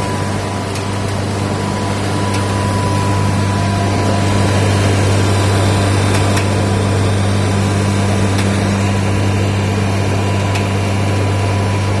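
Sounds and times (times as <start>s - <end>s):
machine humming and rushing: 0.0s - 12.0s.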